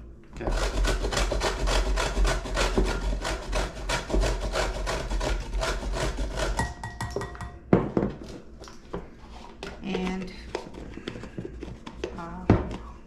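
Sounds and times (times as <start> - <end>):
ginger grated on metal grater: 0.4 - 6.7.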